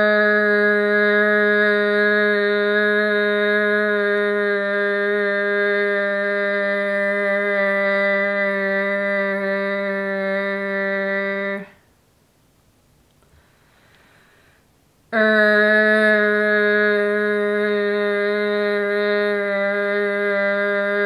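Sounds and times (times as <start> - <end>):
woman holding a long r sound: 0.0 - 11.9, 13.4 - 21.0.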